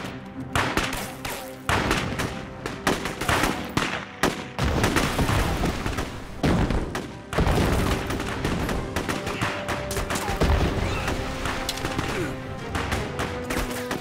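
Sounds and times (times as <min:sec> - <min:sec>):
gunshots: 0:00.0 - 0:14.0.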